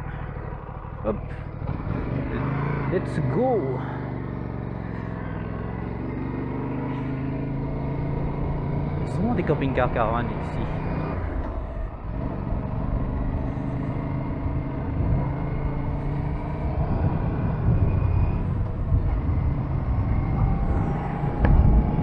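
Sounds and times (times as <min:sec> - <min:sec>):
motorcycle engine running: 0:00.0 - 0:22.0
wind rumble on microphone: 0:11.1 - 0:22.0.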